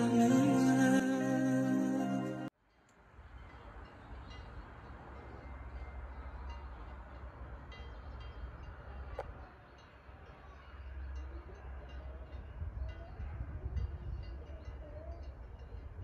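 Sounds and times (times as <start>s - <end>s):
background music: 0.0s - 2.5s
distant cowbells tinkling: 0.0s - 16.0s.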